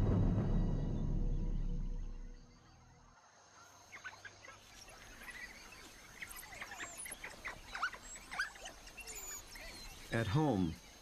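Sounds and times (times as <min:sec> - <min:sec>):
wild dogs twittering: 0:03.6 - 0:11.0.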